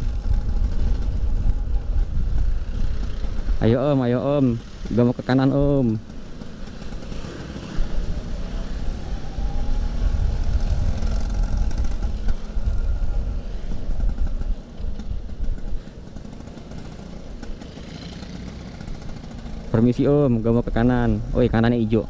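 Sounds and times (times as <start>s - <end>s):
scooter engine running: 0.0s - 3.6s, 4.5s - 19.8s
heavy low rumble: 0.0s - 6.0s.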